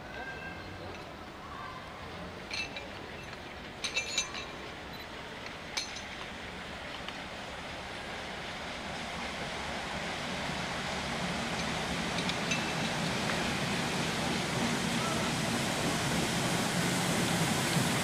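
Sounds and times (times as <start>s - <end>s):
steam train approaching: 0.0s - 18.0s
sharp metallic clinks: 2.5s - 5.2s, 5.8s - 6.2s, 11.6s - 13.0s.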